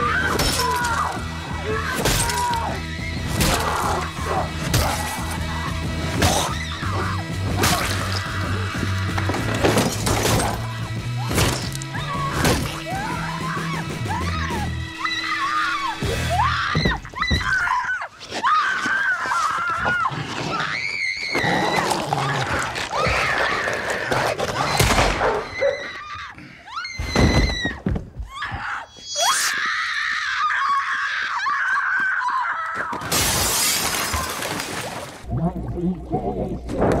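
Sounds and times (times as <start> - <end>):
background music: 0.0 - 17.8
woman screaming hysterically: 25.3 - 33.0.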